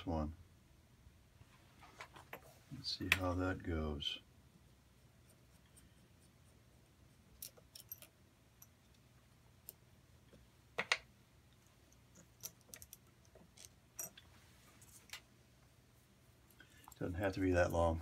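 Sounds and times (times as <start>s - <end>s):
metal bolt and nut clicking: 7.3s - 9.0s, 11.9s - 14.2s.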